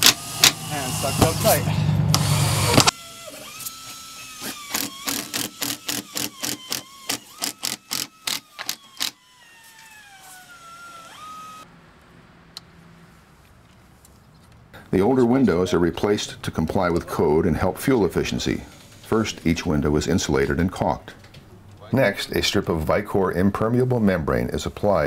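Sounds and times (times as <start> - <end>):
cordless drill whining: 0.0 - 11.7
drill clutch clicking: 2.1 - 10.1.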